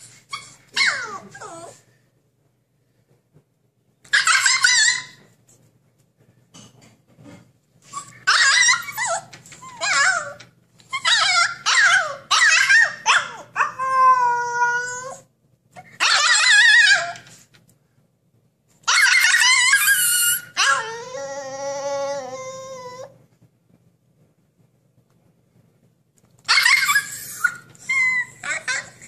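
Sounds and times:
puppy whining and yipping: 0.0s - 1.8s, 4.1s - 5.2s, 7.8s - 17.3s, 18.9s - 23.2s, 26.5s - 29.0s.

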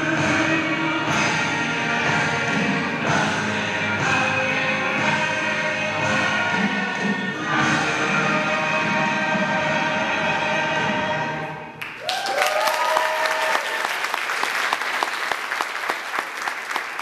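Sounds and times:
audience applause: 11.8s - 17.0s
whoops of cheering: 12.0s - 14.1s.

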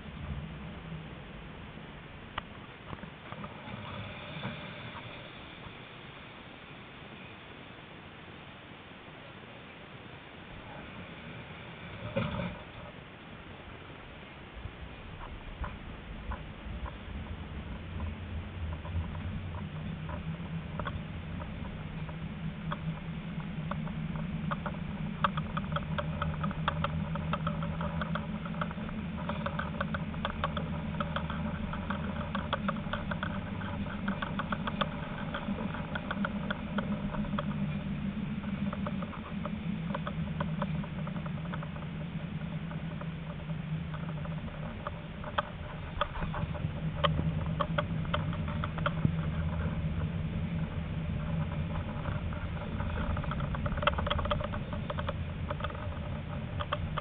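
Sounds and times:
tram humming on track: 10.2s - 57.0s
raindrops on window: 12.1s - 57.0s.

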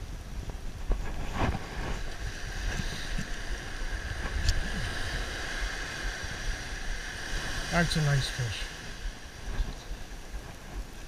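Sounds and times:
small surf waves washing: 0.0s - 11.0s
wind rumbling on microphone: 0.0s - 11.0s.

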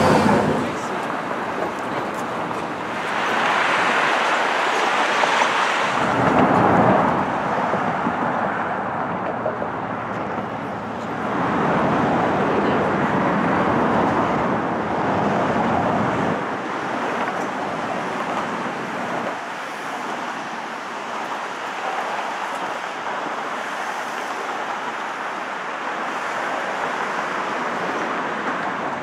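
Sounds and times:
heavy low rumble: 0.0s - 3.4s
road traffic noise: 0.0s - 29.0s.

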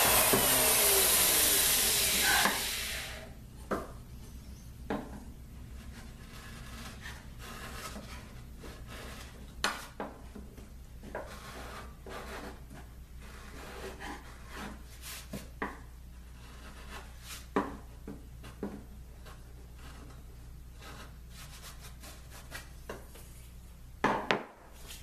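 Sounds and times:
chisel scraping wood: 0.0s - 2.8s, 5.0s - 10.1s, 11.0s - 15.4s, 16.2s - 17.7s, 18.4s - 22.7s.

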